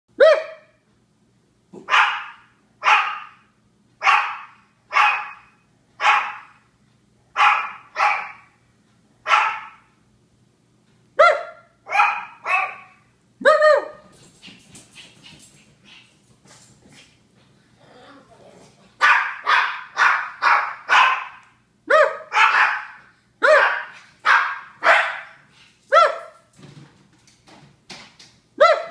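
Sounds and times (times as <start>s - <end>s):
small dog barking: 0.2s - 0.8s, 1.7s - 6.6s, 7.4s - 8.6s, 9.2s - 9.9s, 11.2s - 14.0s, 19.0s - 26.5s, 28.6s - 28.9s.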